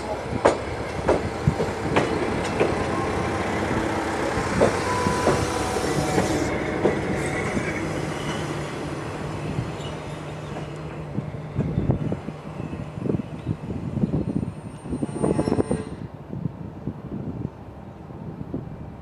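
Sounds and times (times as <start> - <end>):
train wheels clicking over rail joints: 0.4 - 3.0, 4.4 - 7.6.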